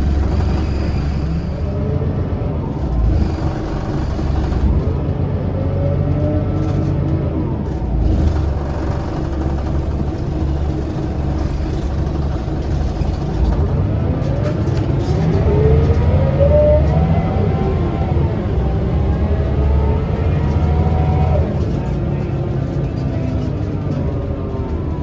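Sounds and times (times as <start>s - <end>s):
bus engine rumbling: 0.0s - 25.0s
drivetrain whine rising in pitch: 15.2s - 21.5s.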